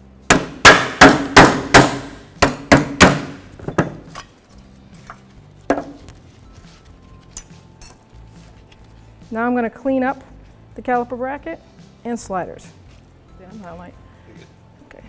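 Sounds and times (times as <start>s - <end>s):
hammer striking metal: 0.3s - 4.3s.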